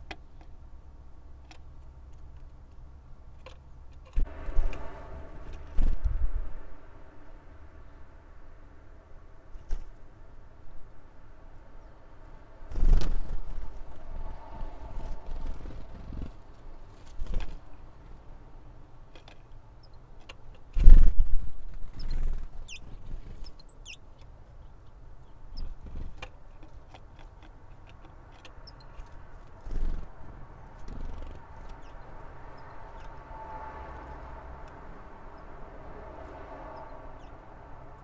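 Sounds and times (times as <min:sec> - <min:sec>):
faint steady hum: 0:00.0 - 0:38.0
bird high chirps: 0:21.9 - 0:24.0, 0:31.0 - 0:33.3.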